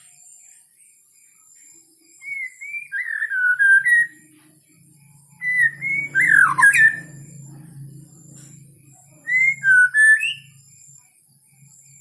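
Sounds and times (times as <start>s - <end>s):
bird whistling: 2.2s - 4.3s, 5.3s - 7.3s, 9.2s - 10.6s.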